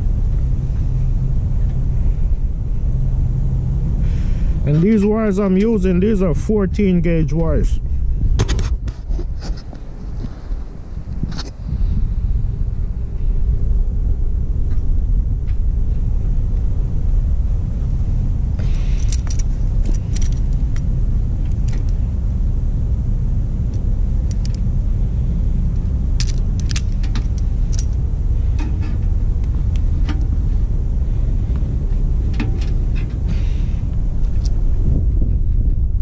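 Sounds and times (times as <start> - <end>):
low rumble: 0.0 - 36.0
plastic connectors clicking and rattling: 18.9 - 20.9, 21.5 - 22.0, 23.7 - 24.7, 26.2 - 28.0.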